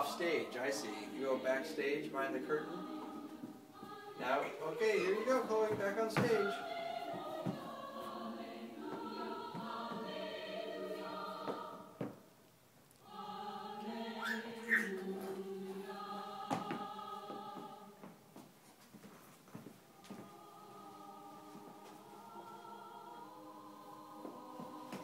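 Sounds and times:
choir singing held chords: 0:00.0 - 0:12.4, 0:13.0 - 0:18.2, 0:19.9 - 0:25.0.

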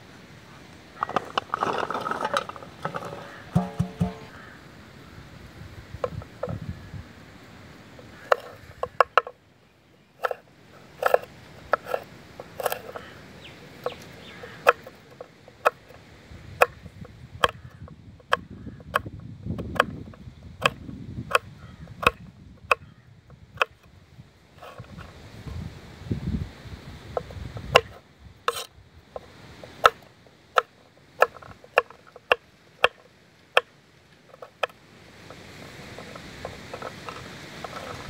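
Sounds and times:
knife chopping on wooden board: 0:03.5 - 0:04.3.

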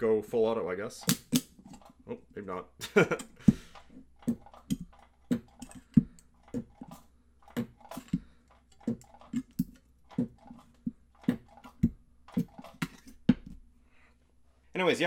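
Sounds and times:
spot welder snapping: 0:01.0 - 0:01.8.

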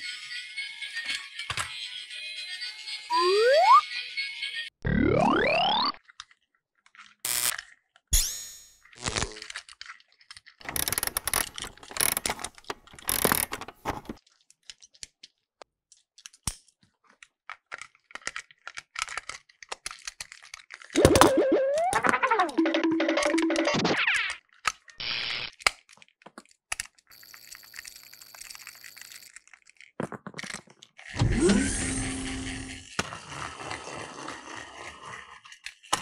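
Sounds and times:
plastic toy clicking and rattling: 0:09.4 - 0:23.6, 0:24.4 - 0:31.4, 0:32.2 - 0:36.0.

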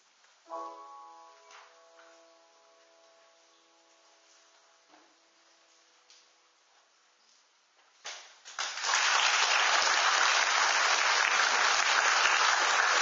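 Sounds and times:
grand piano chord: 0:00.5 - 0:06.7
audience applause: 0:08.6 - 0:13.0.

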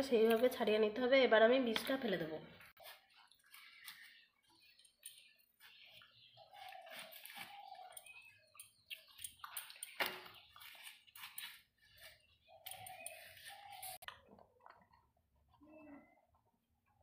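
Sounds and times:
gourd scraping against blade: 0:06.4 - 0:14.1.

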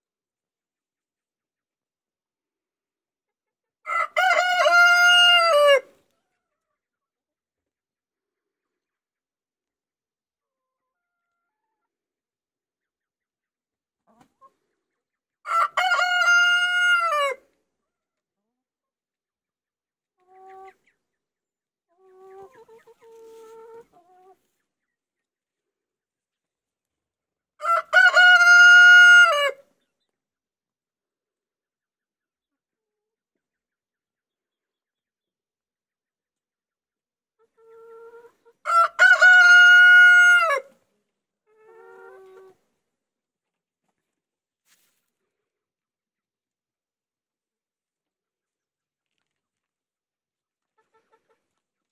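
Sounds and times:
rooster crowing: 0:03.9 - 0:05.9, 0:15.5 - 0:17.4, 0:27.6 - 0:29.6, 0:38.7 - 0:40.7
chicken calls: 0:03.9 - 0:06.8, 0:14.0 - 0:17.6, 0:20.2 - 0:21.2, 0:21.9 - 0:25.0, 0:27.6 - 0:30.1, 0:37.4 - 0:40.8, 0:41.4 - 0:42.7.

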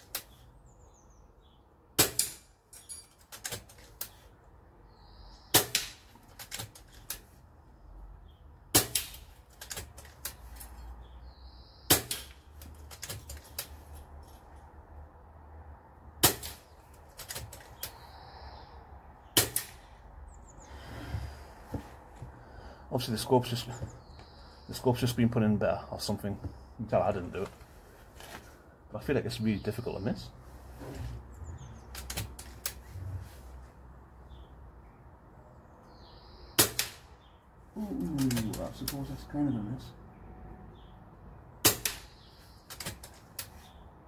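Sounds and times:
air rifle shots cracking: 0:05.5 - 0:06.6, 0:08.7 - 0:09.9, 0:16.2 - 0:17.5, 0:19.4 - 0:19.9, 0:36.6 - 0:37.1, 0:41.6 - 0:43.0.

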